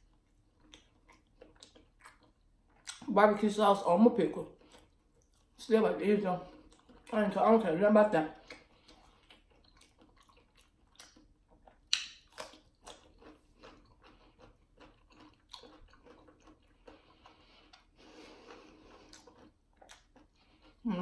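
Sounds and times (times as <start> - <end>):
wet crunchy chewing: 0.0 - 3.1, 4.4 - 5.6, 6.4 - 7.5, 8.3 - 21.0
crunchy pickle bite: 8.4 - 17.9, 18.5 - 20.4.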